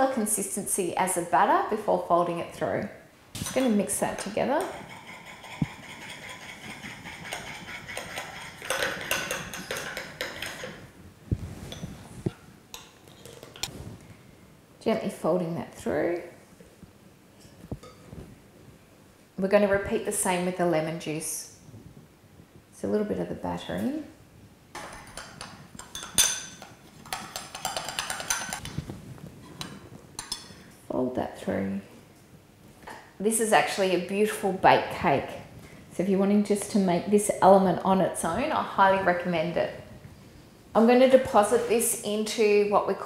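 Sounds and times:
spoon scraping glass bowl: 0:03.4 - 0:10.8, 0:11.6 - 0:12.1, 0:12.8 - 0:13.7.

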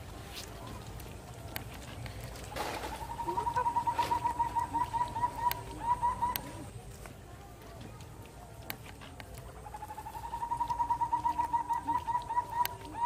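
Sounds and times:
bird calling short notes: 0:02.8 - 0:06.7.

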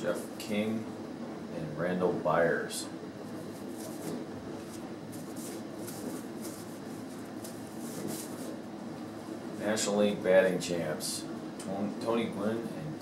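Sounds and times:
cards rustling: 0:03.6 - 0:08.6.

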